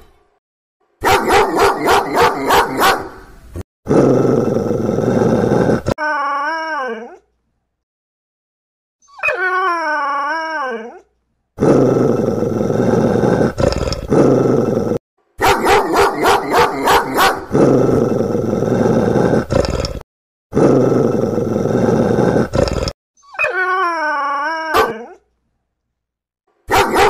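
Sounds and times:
dog growling: 3.9 - 6.0, 11.6 - 15.0, 15.8 - 23.0
dog howling: 23.4 - 25.2.

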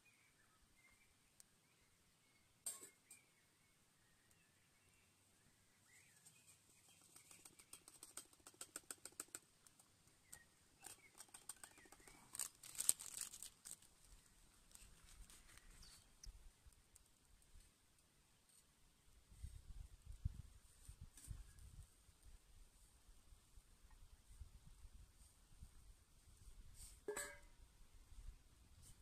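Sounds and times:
metal cookware clinking: 27.1 - 27.4.

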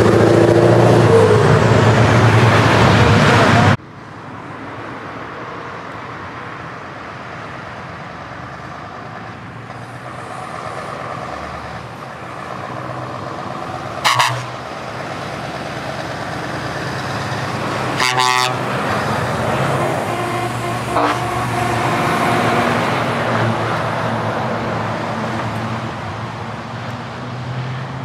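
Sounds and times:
heavy truck diesel engines: 0.0 - 28.0
pitched horn toot: 14.0 - 14.6, 18.0 - 18.7, 19.5 - 22.8
loud horn blasts: 14.0 - 14.7, 17.9 - 23.1.

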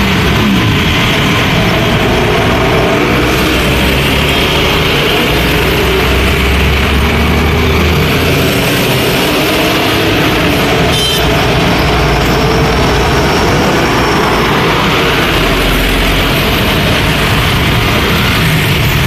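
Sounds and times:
motorcycles passing: 0.0 - 19.0
trucks passing: 0.0 - 19.0.

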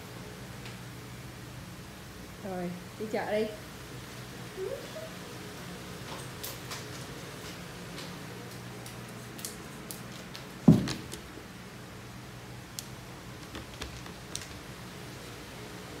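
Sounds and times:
dull thump: 10.7 - 11.2
plastic baskets tapping and clicking: 12.8 - 14.6.

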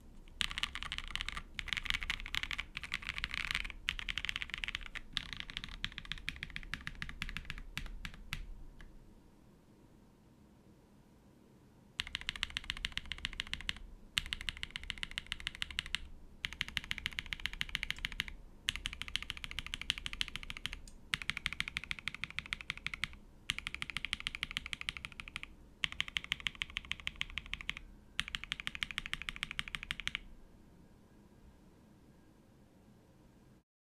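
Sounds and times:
mechanical keyboard typing: 0.3 - 8.9, 12.0 - 30.3.

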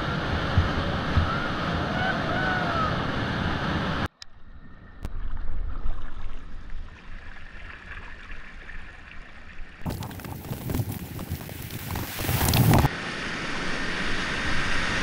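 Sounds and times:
loud rush of water: 0.0 - 4.1, 9.8 - 15.0
kayak paddle in water: 0.0 - 15.0
wind rumbling on microphone: 9.7 - 15.0
rapids rushing: 9.8 - 15.0.

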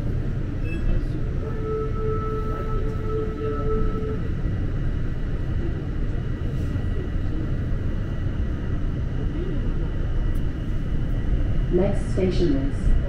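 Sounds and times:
steady whine: 0.0 - 13.0
train wheels rumbling on track: 0.0 - 13.0.

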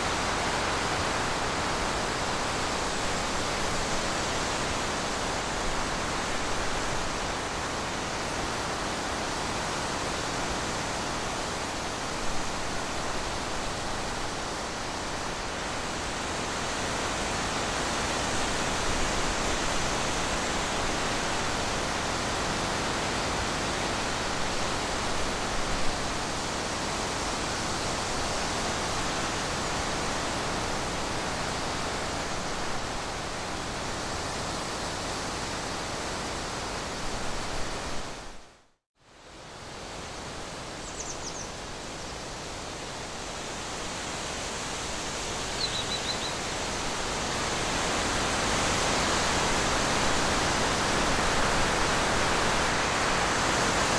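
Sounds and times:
steady hiss: 39.1 - 53.9.

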